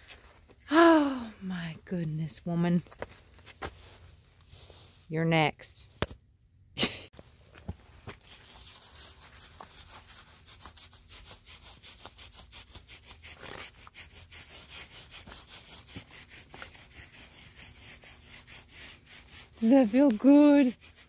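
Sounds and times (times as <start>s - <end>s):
curry comb scrubbing horse coat: 8.1s - 21.0s.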